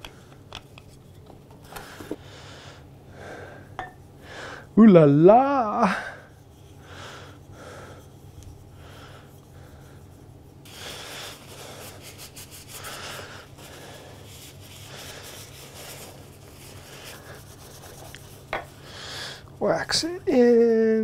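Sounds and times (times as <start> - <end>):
paper towel rubbing metal: 7.4 - 18.8.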